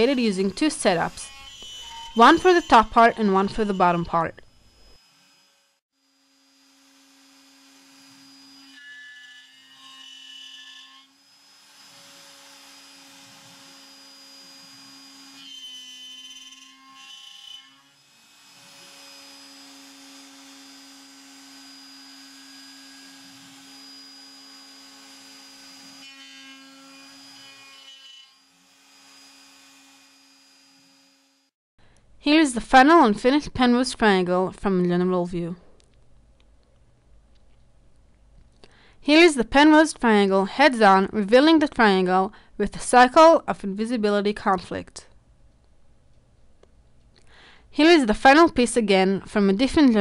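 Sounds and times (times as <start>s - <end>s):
cutter milling wood: 0.0s - 31.5s
router spindle humming: 0.0s - 31.5s.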